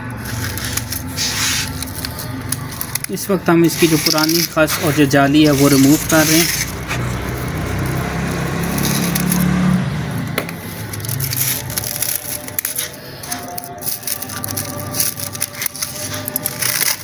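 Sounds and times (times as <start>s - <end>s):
dry grass crackling and crunching: 0.0s - 17.0s
scissors snipping plastic ties: 0.4s - 9.7s, 10.5s - 17.0s.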